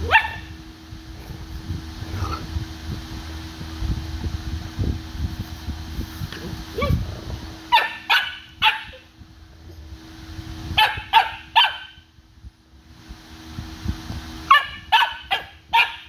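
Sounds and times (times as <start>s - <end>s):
dog barking: 0.0s - 0.5s, 7.7s - 9.0s, 10.8s - 12.0s, 14.5s - 16.0s.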